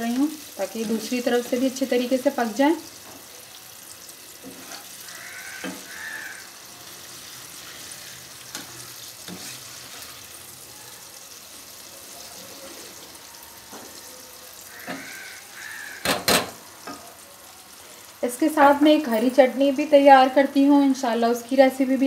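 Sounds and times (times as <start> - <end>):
food sizzling in hot oil: 0.0 - 22.0
spoon knocking against pan: 5.6 - 6.0, 16.0 - 17.0.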